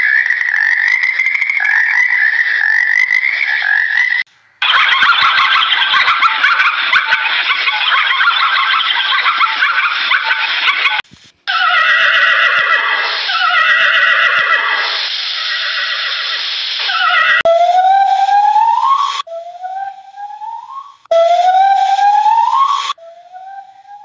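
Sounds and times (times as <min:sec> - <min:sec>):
rising whistle-like call: 0:04.6 - 0:24.0
horses whinnying: 0:11.5 - 0:17.4.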